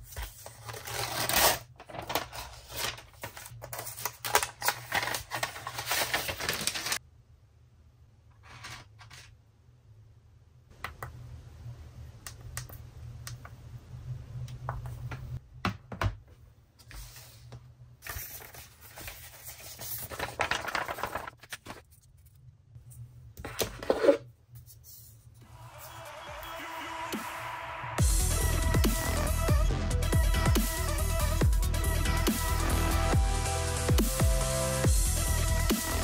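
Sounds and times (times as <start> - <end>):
rustling and scraping: 8.4 - 9.3.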